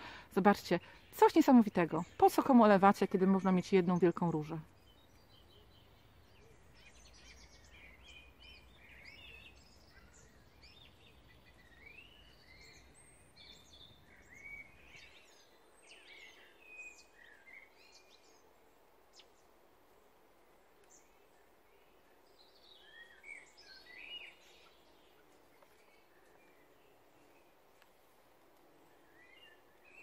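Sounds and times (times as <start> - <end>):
birds chirping and whistling: 4.8 - 18.3.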